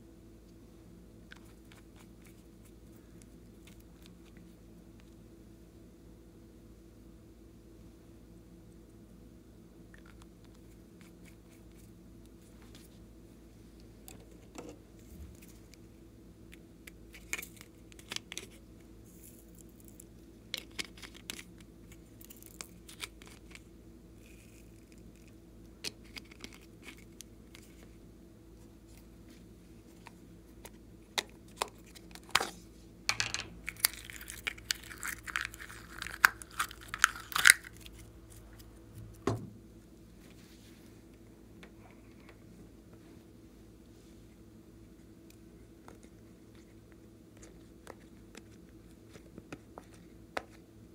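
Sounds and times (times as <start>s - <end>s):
slime crackling: 33.6s - 38.6s.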